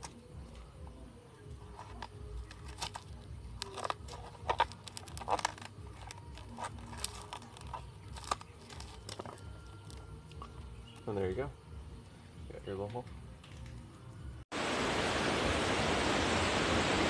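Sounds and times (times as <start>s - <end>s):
knife cutting coconut husk: 3.6s - 10.0s.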